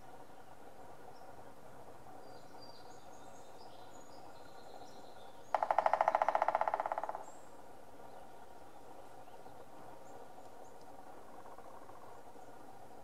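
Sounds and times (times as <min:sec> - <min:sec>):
woodpecker drumming on tree: 0:05.5 - 0:07.3, 0:10.8 - 0:12.2.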